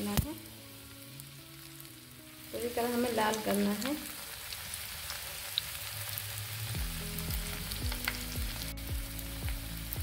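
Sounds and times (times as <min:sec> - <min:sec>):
hot oil sizzling: 0:00.0 - 0:10.0
background music beat: 0:06.6 - 0:10.0.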